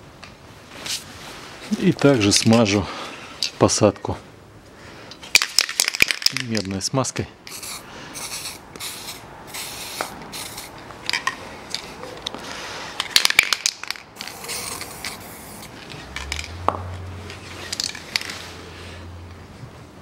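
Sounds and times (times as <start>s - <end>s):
aerosol can spraying: 7.5s - 10.8s, 14.2s - 15.8s.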